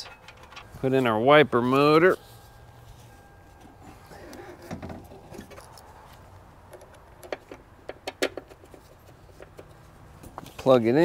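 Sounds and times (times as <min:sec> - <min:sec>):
metal clicks and clunks: 0:00.0 - 0:00.7, 0:06.7 - 0:10.7.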